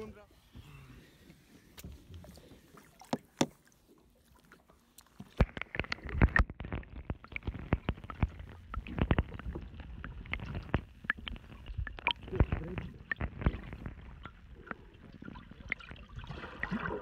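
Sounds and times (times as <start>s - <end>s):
muffled underwater sloshing: 0.0s - 17.0s
water lapping: 0.0s - 17.0s
dull thumps and clicks: 3.0s - 3.6s, 5.2s - 14.7s.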